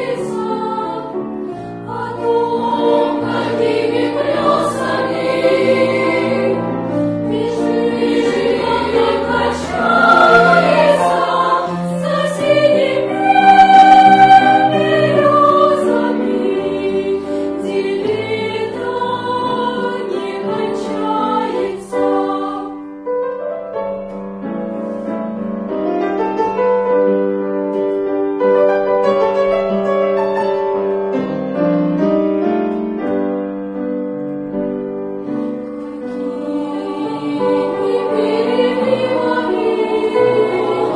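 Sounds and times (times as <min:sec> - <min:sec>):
children's choir singing: 0:00.0 - 0:23.0, 0:35.4 - 0:40.9.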